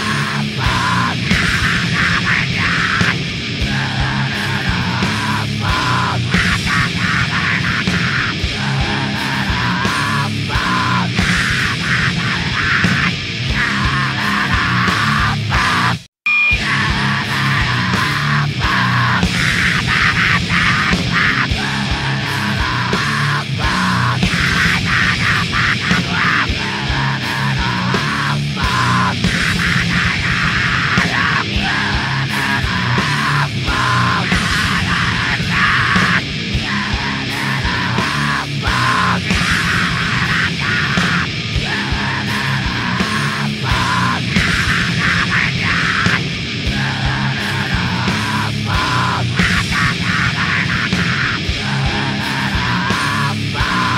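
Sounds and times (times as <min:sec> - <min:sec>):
bass line: 0:00.0 - 0:53.9
heavy rock music: 0:00.0 - 0:53.9
drum beat: 0:16.7 - 0:53.9.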